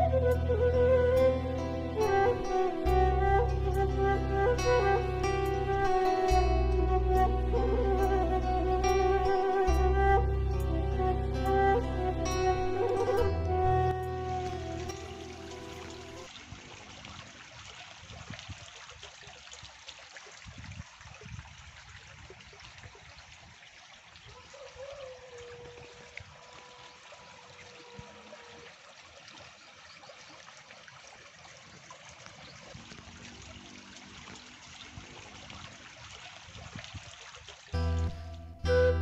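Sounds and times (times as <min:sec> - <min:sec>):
water trickling in a ditch: 0:00.0 - 0:39.0.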